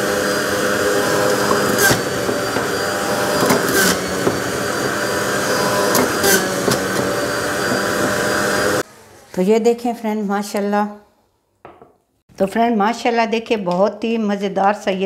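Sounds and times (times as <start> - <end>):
blender motor whirring: 0.0 - 8.8.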